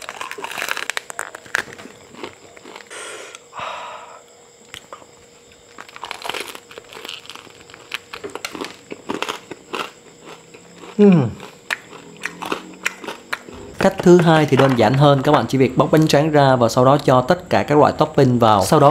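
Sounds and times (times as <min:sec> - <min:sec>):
rice paper crinkling: 0:00.0 - 0:02.8, 0:05.6 - 0:08.8
crackling chewing: 0:00.0 - 0:03.5, 0:04.6 - 0:16.2.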